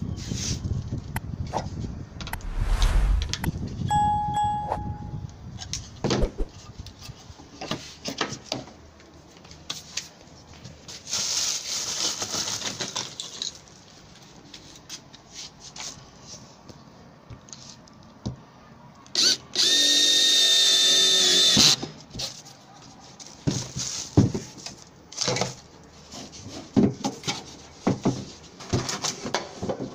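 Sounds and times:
electric drill boring: 19.2s - 21.8s.

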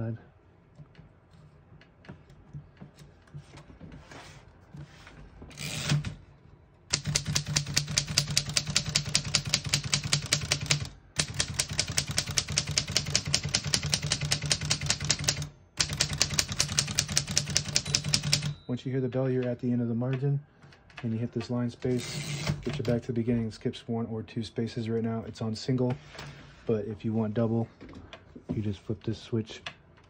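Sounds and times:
typewriter typing: 5.6s - 6.2s, 6.9s - 18.6s, 21.8s - 23.0s.

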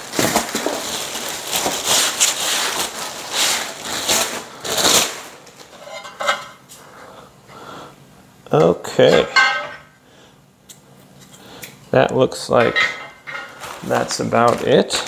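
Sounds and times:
plastic wrapping rustling: 0.0s - 6.6s, 12.6s - 15.0s
metal clinking: 9.1s - 9.9s.

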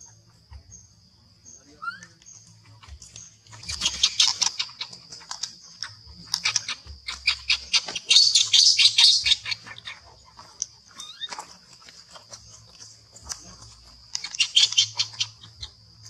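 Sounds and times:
baby monkey squeaking: 1.8s - 10.1s, 10.9s - 11.5s, 14.1s - 15.8s.

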